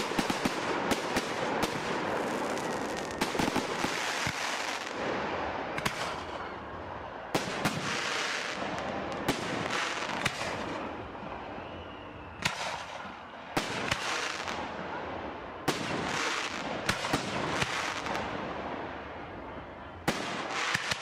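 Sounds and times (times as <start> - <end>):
firework bangs with echo: 0.0 - 5.1, 12.4 - 14.6.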